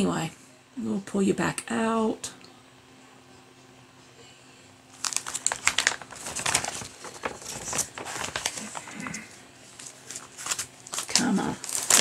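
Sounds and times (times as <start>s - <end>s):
plastic film crinkling: 4.9s - 12.0s.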